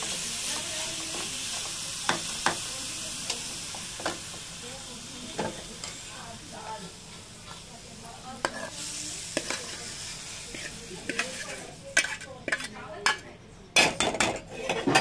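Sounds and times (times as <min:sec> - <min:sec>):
food sizzling: 0:00.0 - 0:13.3
metal utensils scraping a pan: 0:08.4 - 0:13.2, 0:13.8 - 0:15.0.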